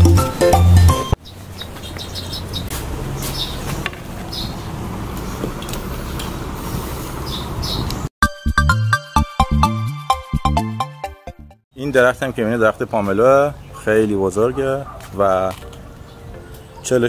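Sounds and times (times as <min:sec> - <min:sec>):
music: 0:00.0 - 0:01.2, 0:08.2 - 0:11.6
low traffic hum: 0:00.0 - 0:08.1, 0:11.7 - 0:17.0
bird chirps: 0:01.2 - 0:04.7, 0:07.2 - 0:08.0.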